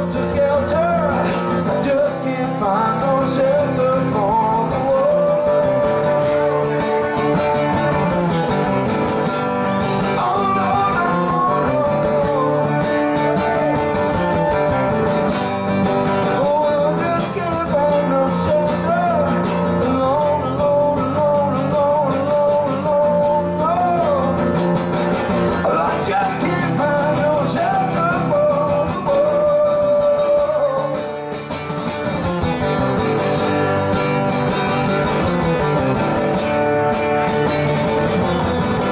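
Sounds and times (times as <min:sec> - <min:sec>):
man singing: 0:00.0 - 0:33.2
strummed acoustic guitar: 0:00.0 - 0:38.9.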